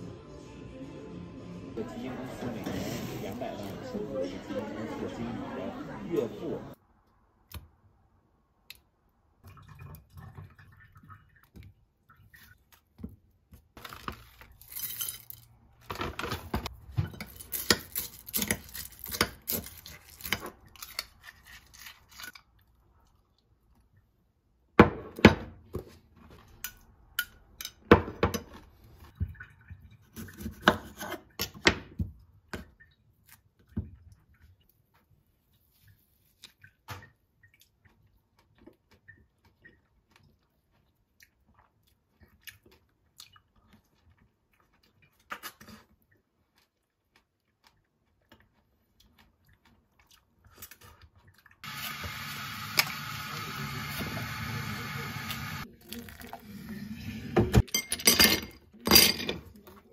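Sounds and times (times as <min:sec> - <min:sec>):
dishes and glassware clinking: 0:57.4 - 0:59.5.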